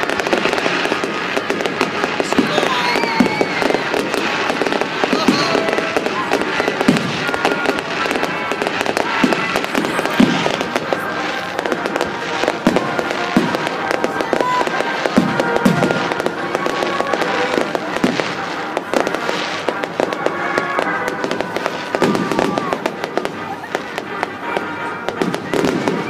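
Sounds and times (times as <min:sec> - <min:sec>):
fireworks crackling: 0:00.0 - 0:26.0
dull booms of firework shells: 0:00.4 - 0:11.0.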